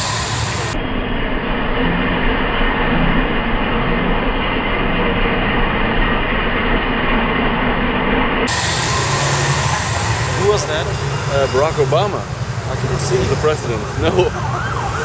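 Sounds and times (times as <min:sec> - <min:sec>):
motorcade driving past: 0:08.5 - 0:15.0.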